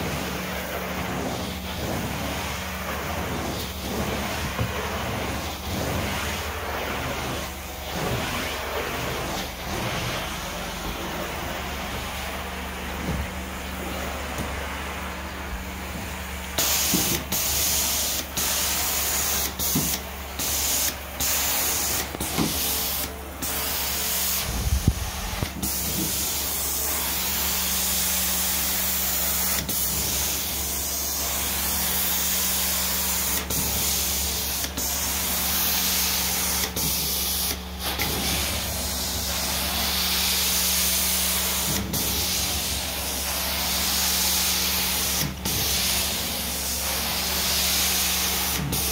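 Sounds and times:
cleaning machine hum: 0.0 - 48.9
spray and suction hiss: 16.6 - 48.9.

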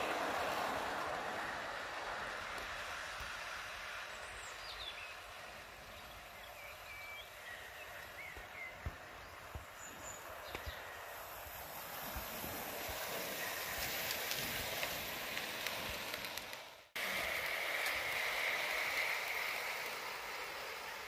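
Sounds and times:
small birds chirping: 4.0 - 11.3
model train wheels clicking on rails: 11.2 - 21.0.

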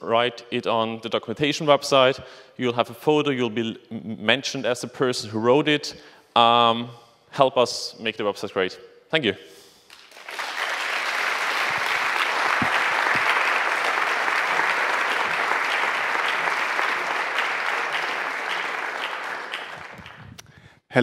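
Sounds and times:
audience applauding: 9.9 - 20.4.

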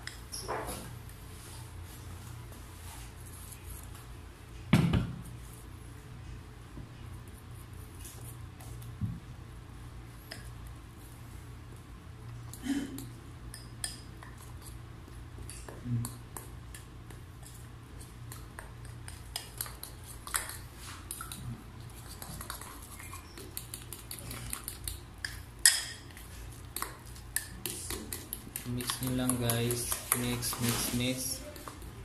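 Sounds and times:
spoon clinking and scraping bowl: 22.1 - 31.7.

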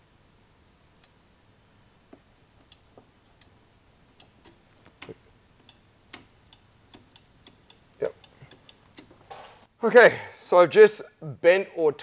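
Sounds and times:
small switch clicks: 2.6 - 3.6, 4.2 - 9.2.

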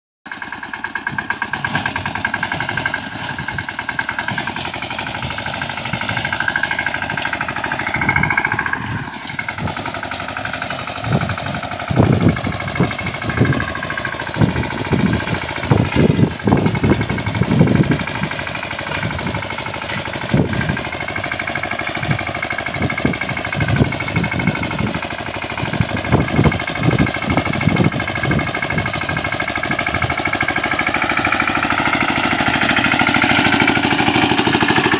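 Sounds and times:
diesel tractor engine running: 0.3 - 34.9
rotavator heavy low thuds: 1.2 - 21.0.

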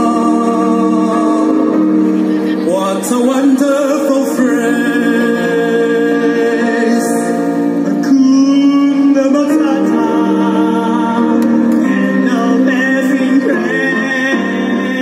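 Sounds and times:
person singing amplified: 0.0 - 15.0.

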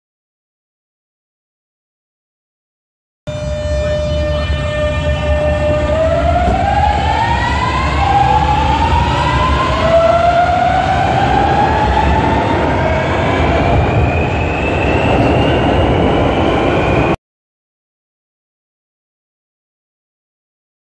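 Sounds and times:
wheels rumbling on rail: 3.3 - 17.2.

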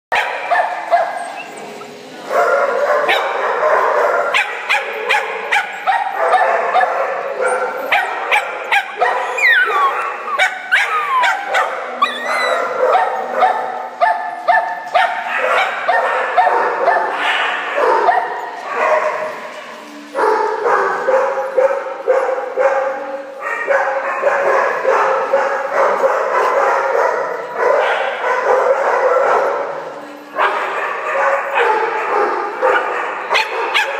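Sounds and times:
puppies yipping and barking: 0.1 - 2.0, 4.4 - 19.5.

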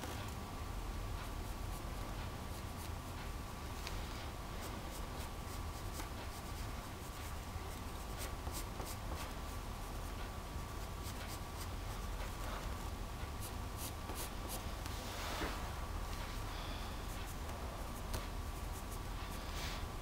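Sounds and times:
steady low hum: 0.0 - 20.0
pencil scratching on paper: 13.4 - 14.6.

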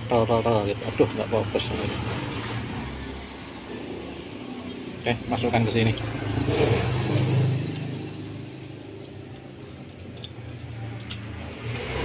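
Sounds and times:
metal parts clinking: 9.8 - 11.3.

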